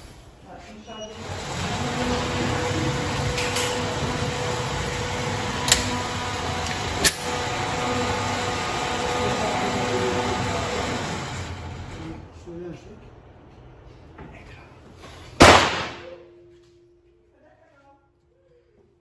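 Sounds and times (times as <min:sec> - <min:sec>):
pistol shots: 0:15.4 - 0:16.1.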